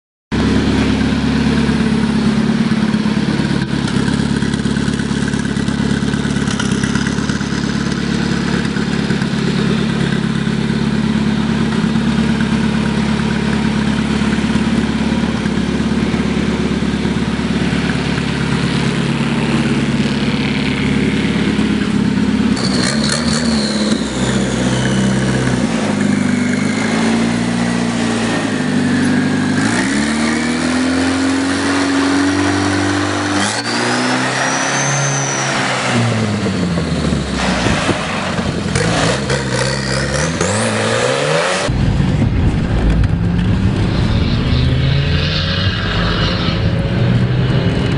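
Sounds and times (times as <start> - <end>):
diesel engine idling: 0.4 - 22.6
turbo whistle: 33.4 - 36.0.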